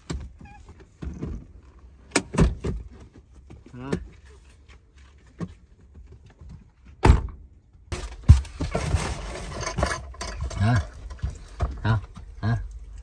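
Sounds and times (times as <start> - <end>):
rustling and knocking of mats: 0.0 - 10.0.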